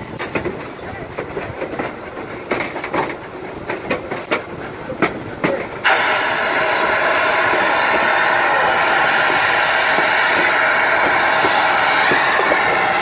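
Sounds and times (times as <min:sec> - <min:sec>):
train wheels clicking over rail joints: 0:00.0 - 0:13.0
loud steam hiss: 0:05.8 - 0:13.0.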